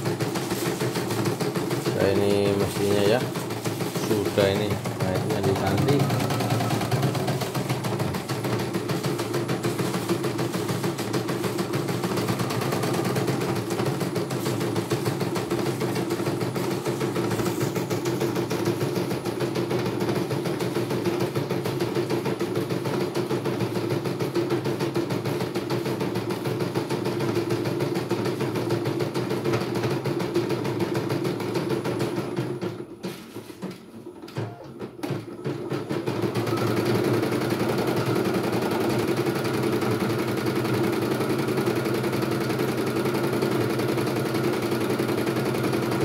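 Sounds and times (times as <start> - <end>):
embroidery machine needle clatter: 0.0 - 32.8.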